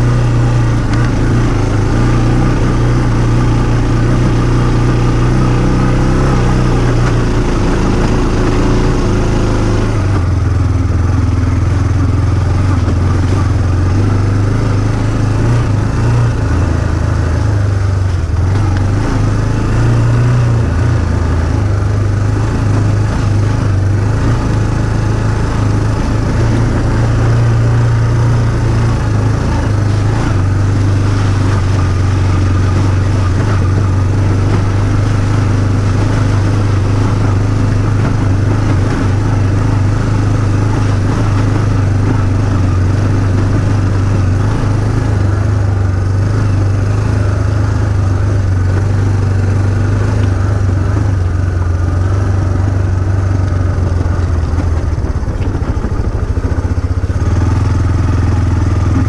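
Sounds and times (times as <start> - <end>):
vehicle engine revving: 0.0 - 59.0.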